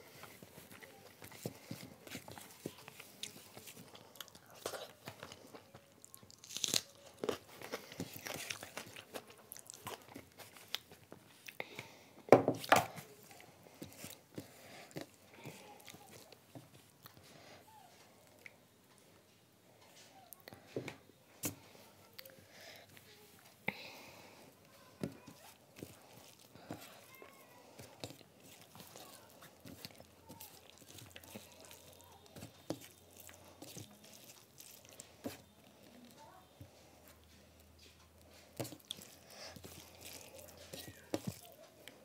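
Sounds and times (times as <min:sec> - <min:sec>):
fingers mixing rice and curry: 0:00.0 - 0:19.2, 0:19.8 - 0:42.0
fingers squelching food: 0:24.6 - 0:36.4, 0:37.1 - 0:42.0.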